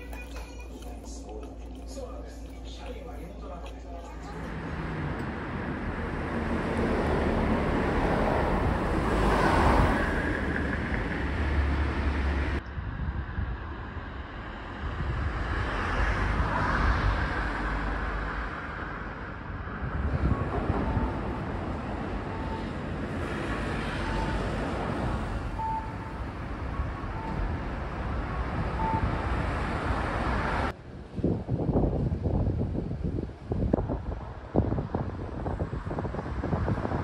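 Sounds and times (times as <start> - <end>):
passing road traffic: 0.0 - 37.0
wind buffeting microphone: 1.0 - 37.0
faint short beeps: 28.8 - 29.1.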